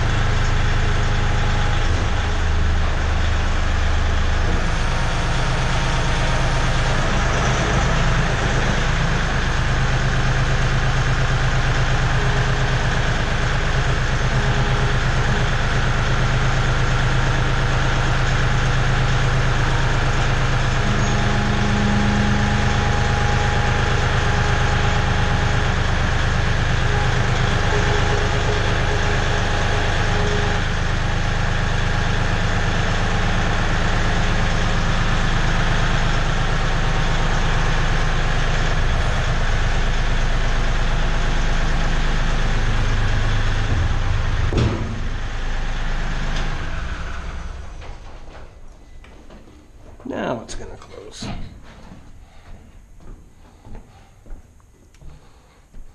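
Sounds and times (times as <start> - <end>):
tractor engine running: 0.0 - 49.9
hydraulic whining: 0.0 - 50.0.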